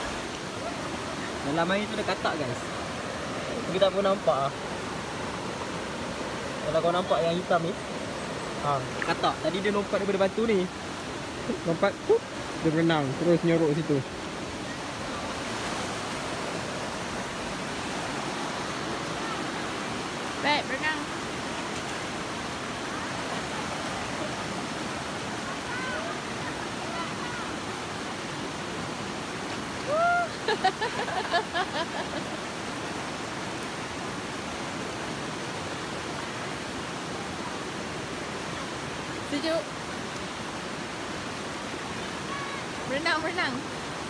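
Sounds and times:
river rushing over stones: 0.0s - 44.0s.

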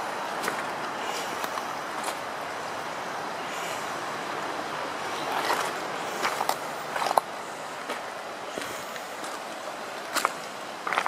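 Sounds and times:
river rushing over stones: 0.0s - 11.0s
footsteps crunching on pebbles: 10.1s - 11.0s.

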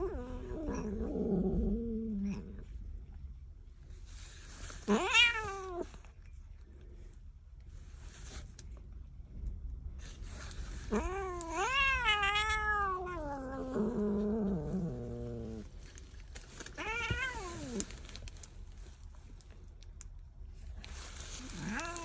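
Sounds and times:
cat grumbling: 0.0s - 2.8s, 10.8s - 15.8s, 16.8s - 17.9s, 21.4s - 22.0s
cat meowing: 4.9s - 5.9s, 10.9s - 14.1s, 16.8s - 17.8s.

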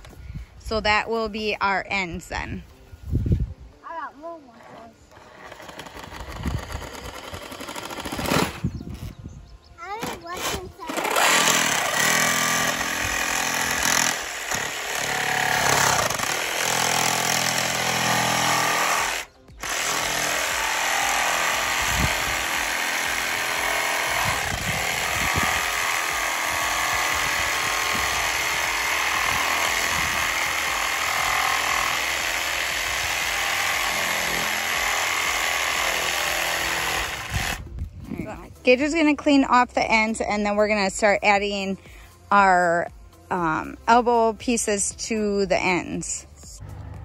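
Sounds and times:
jigsaw cutting plastic pipe: 4.6s - 8.6s, 10.0s - 37.6s.

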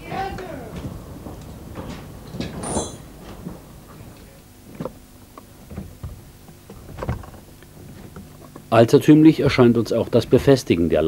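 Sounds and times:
wooden knocks and clunks: 0.1s - 4.0s, 4.6s - 8.6s.

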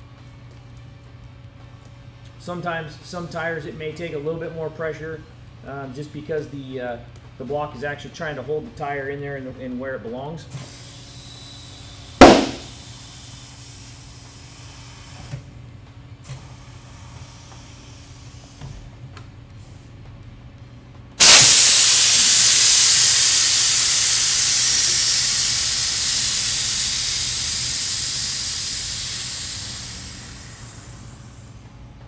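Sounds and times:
compressed air hissing: 11.8s - 14.1s, 21.2s - 31.7s.

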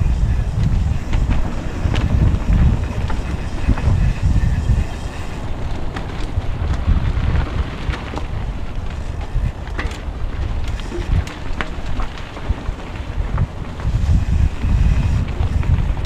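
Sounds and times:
wind buffeting microphone: 0.0s - 16.0s
knocks and rattles from bumpy ride: 5.8s - 16.0s.

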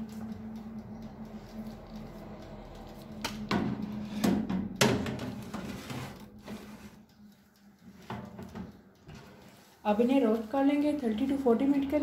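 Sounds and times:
metal tray clanking: 3.6s - 7.0s
metal tray scraping on rack: 4.9s - 7.0s.

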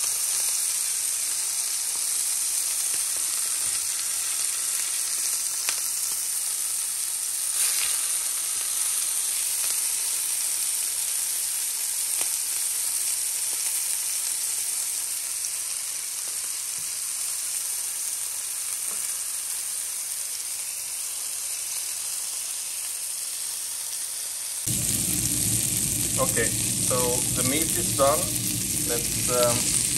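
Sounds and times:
patties sizzling in frying pan: 0.0s - 29.9s.

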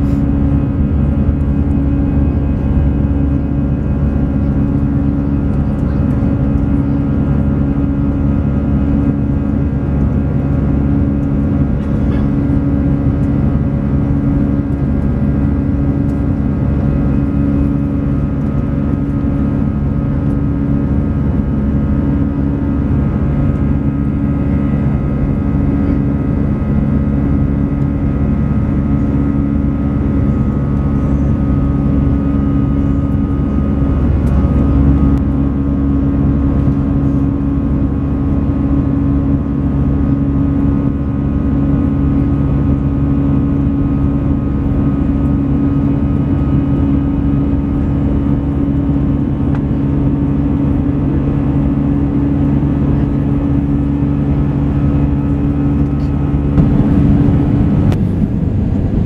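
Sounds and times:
airplane cabin engine drone: 0.0s - 59.0s.

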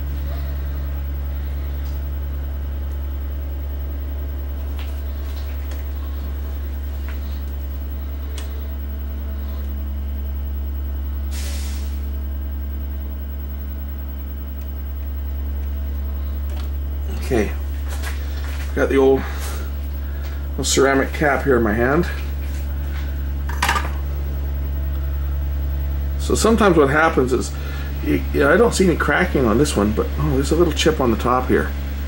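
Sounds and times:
low electrical hum: 0.0s - 32.0s
short hiss: 11.3s - 12.0s.

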